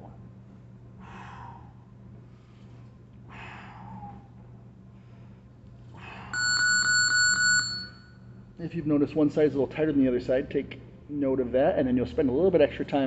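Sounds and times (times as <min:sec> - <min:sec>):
man breathing out softly: 0:01.0 - 0:02.7
electronic timer ringing: 0:06.4 - 0:08.2.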